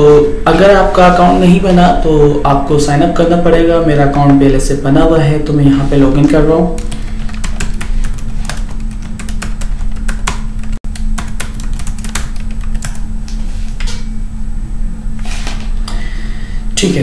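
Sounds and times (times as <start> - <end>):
low hum: 0.0 - 17.0
computer keyboard typing: 6.3 - 13.1.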